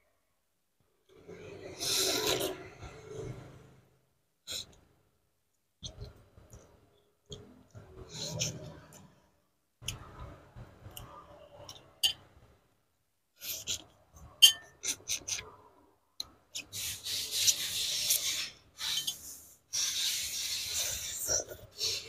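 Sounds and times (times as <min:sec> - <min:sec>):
sucking at bones: 0:01.4 - 0:02.8.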